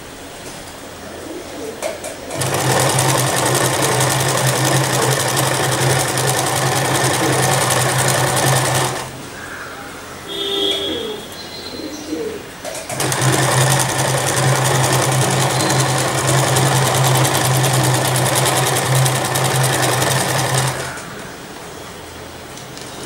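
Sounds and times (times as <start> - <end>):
sewing machine stitching: 2.3 - 9.1, 12.9 - 21.1.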